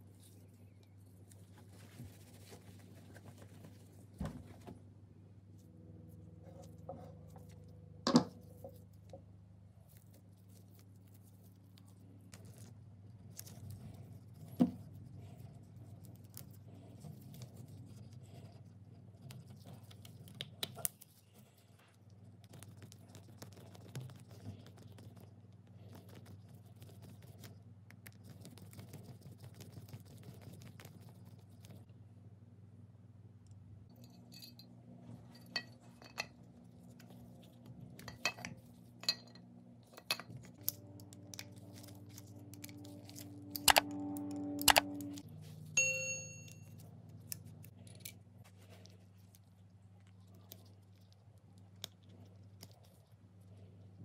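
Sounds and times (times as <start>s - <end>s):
cloth rubbing and rustling: 1.3s - 4.6s.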